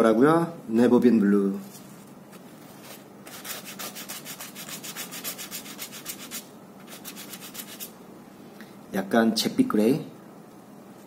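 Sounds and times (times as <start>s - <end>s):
brush rubbing on paper: 2.6s - 8.0s.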